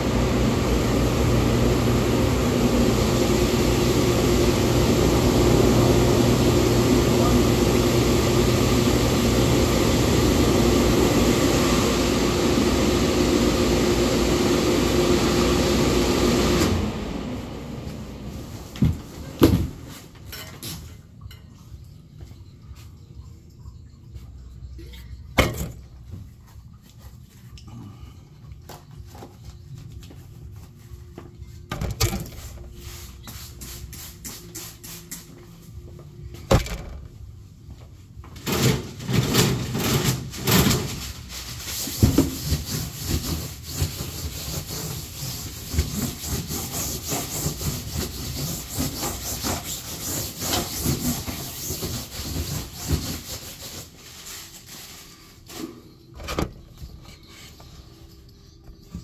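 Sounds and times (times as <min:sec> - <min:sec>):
paper towel rubbing: 0:40.0 - 0:56.0.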